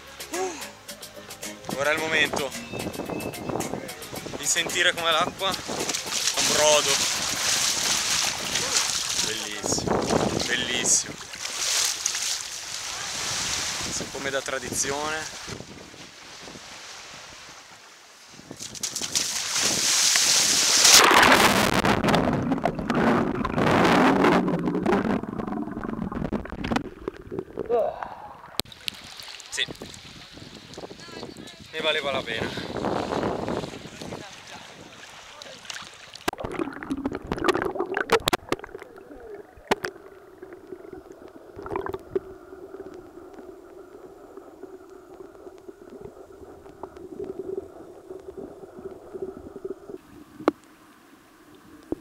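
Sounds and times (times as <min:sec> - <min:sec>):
seawater splashing and rushing: 0:04.0 - 0:27.4, 0:32.0 - 0:50.5
underwater churning and bubbling: 0:20.8 - 0:28.8, 0:36.1 - 0:52.0.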